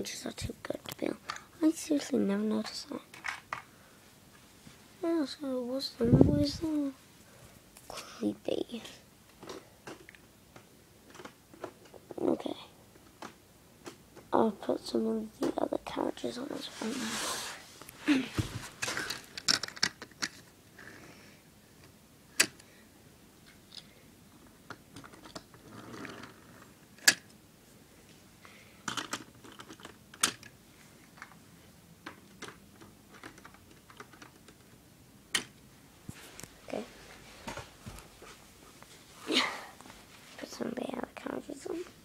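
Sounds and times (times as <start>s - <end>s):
plastic toy pieces clicking: 18.9s - 20.4s, 28.8s - 30.5s, 32.0s - 35.5s.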